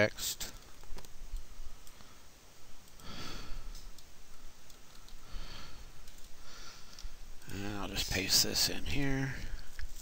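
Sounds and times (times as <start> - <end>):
person breathing in through nose: 3.0 - 3.8, 5.2 - 7.2
faint clicks: 3.7 - 5.2, 6.0 - 7.6.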